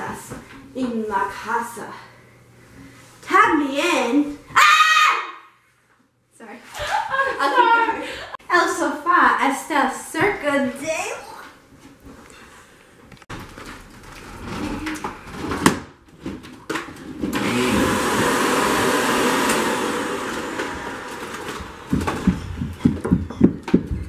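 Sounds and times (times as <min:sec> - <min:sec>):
upright vacuum cleaner running: 0:17.1 - 0:24.0
sharp knocks and thumps: 0:21.5 - 0:24.0.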